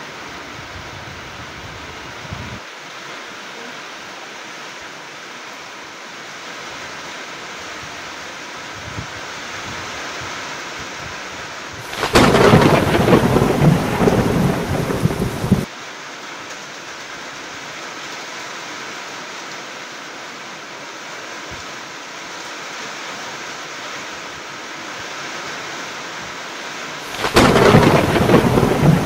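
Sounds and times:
steady rain hiss: 0:00.0 - 0:29.0
crackling thunderclap: 0:11.8 - 0:15.7, 0:27.1 - 0:29.0.

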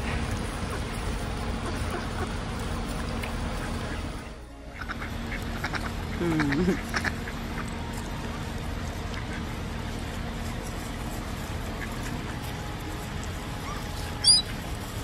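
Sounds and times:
high-pitched chirp: 0:13.6 - 0:14.5.

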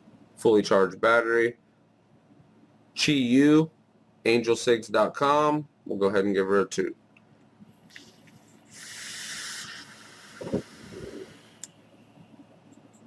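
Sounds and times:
rushing hiss of air: 0:08.7 - 0:11.6.

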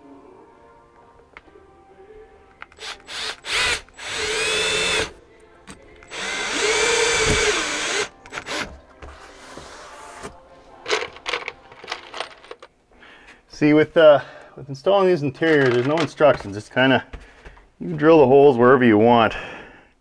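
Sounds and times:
cordless drill whirring: 0:02.8 - 0:05.1, 0:06.1 - 0:08.7.

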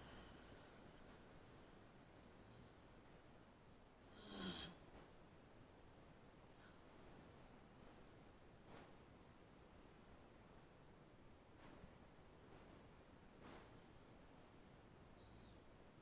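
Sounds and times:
faint short squeaks: 0:13.4 - 0:14.5.

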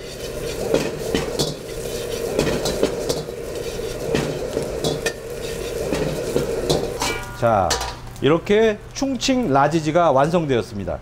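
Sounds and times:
metal ladle scraping a wok: 0:00.0 - 0:08.0
food sizzling: 0:00.0 - 0:09.6.

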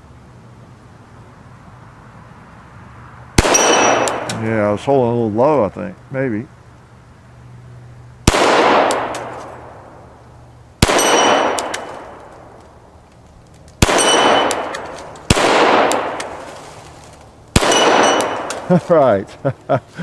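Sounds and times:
pistol shots with echo: 0:03.4 - 0:04.4, 0:08.2 - 0:09.9, 0:10.8 - 0:12.6, 0:13.8 - 0:16.4, 0:17.5 - 0:18.7
steel targets ringing: 0:03.4 - 0:04.4, 0:10.8 - 0:12.2, 0:13.8 - 0:15.0, 0:17.6 - 0:18.7.

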